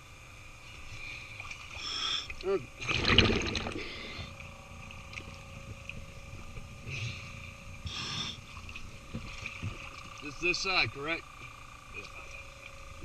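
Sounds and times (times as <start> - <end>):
faint steady hum: 0.0 - 13.0
water rush and bubbles: 1.2 - 6.9.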